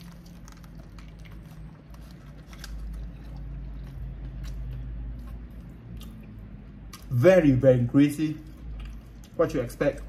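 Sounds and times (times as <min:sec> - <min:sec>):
biting into crispy chicken: 0:00.0 - 0:06.3
crunchy chewing: 0:00.0 - 0:07.2, 0:08.4 - 0:10.0.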